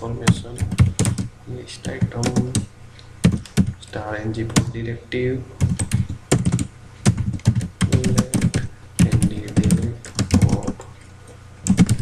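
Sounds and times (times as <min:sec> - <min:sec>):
typing on computer keyboard: 0:00.3 - 0:03.7, 0:05.6 - 0:10.9, 0:11.6 - 0:12.0.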